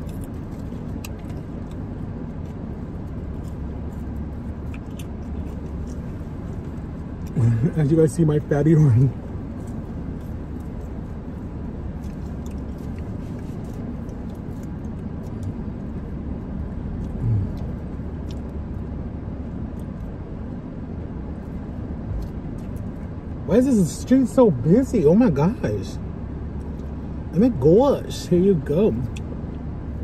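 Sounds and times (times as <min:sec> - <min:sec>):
chewing and food handling clicks: 0:00.0 - 0:08.3, 0:08.9 - 0:20.6, 0:21.2 - 0:23.2, 0:26.5 - 0:27.1, 0:28.9 - 0:30.0.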